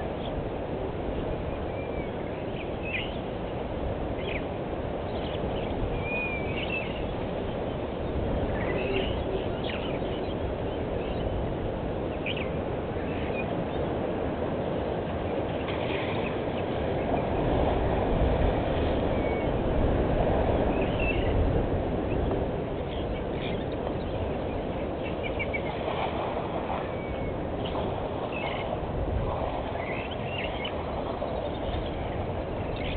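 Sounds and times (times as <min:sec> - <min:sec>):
low outdoor background rush: 0:00.0 - 0:32.9
bird chirps and whistles: 0:06.0 - 0:07.0.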